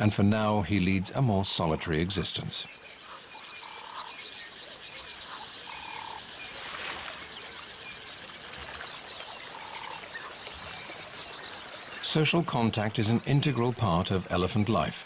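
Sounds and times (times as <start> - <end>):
frog croaking: 2.7 - 6.5, 9.3 - 10.4
soft rush of noise: 6.4 - 7.7.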